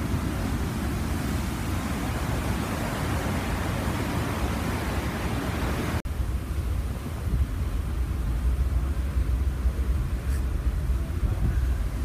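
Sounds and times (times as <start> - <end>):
ship wake churning: 0.0 - 12.0
wind buffeting microphone: 0.0 - 12.0
heavy low rumble: 6.1 - 12.0.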